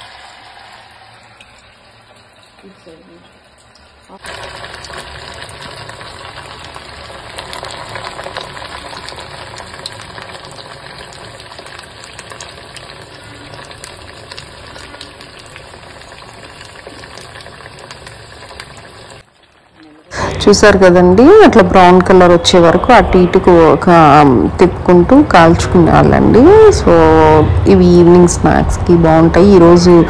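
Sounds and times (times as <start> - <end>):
fritters sizzling in oil: 0.0 - 23.0.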